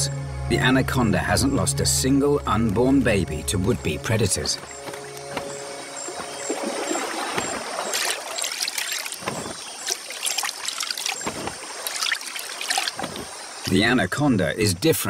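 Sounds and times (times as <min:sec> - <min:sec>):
water trickling and splashing: 0:03.6 - 0:14.3.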